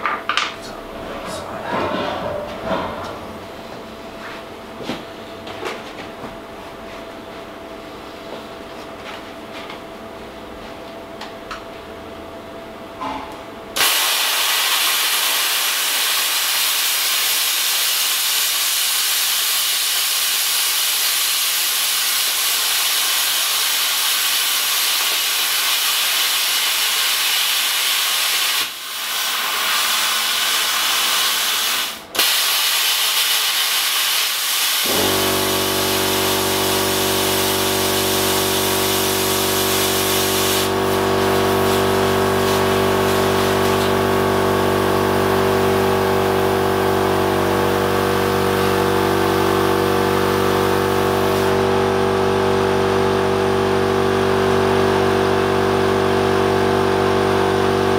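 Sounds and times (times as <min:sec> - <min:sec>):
plasma cutter hissing: 0:13.8 - 0:44.2, 0:47.9 - 0:51.6.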